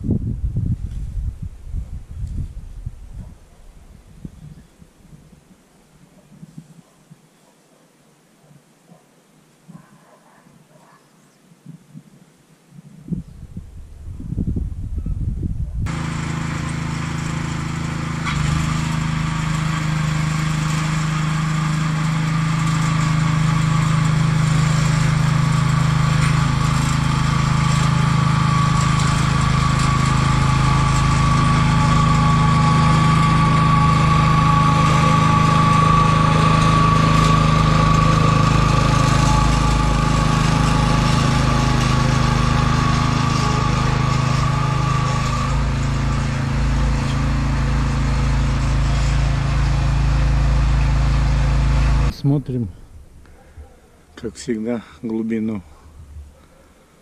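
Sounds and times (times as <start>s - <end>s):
small petrol engine running: 15.9s - 52.1s.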